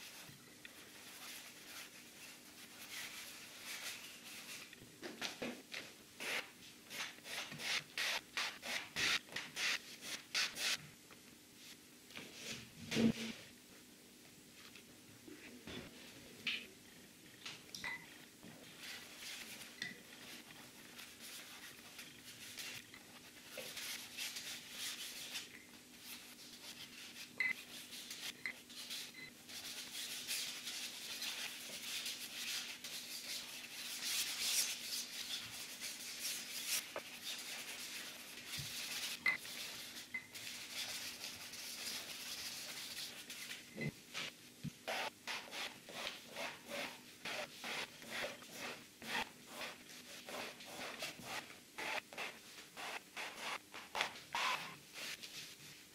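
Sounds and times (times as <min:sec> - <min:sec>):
faint steady hum: 0:00.0 - 0:55.9
paintbrush scrubbing canvas: 0:18.6 - 0:53.6, 0:55.0 - 0:55.8.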